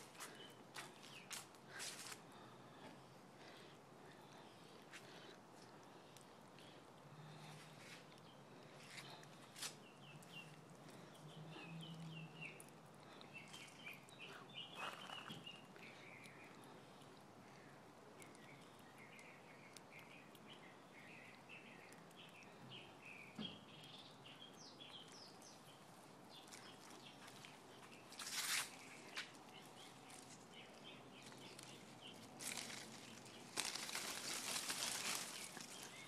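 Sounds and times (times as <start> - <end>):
small birds chirping: 0.0 - 36.0
rustling: 26.4 - 36.0.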